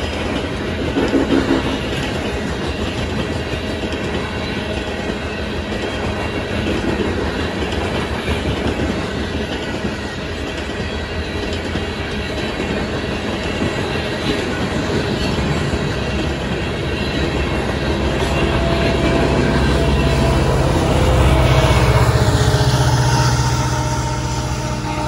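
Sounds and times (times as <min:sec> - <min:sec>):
diesel engine drone: 0:16.2 - 0:25.0.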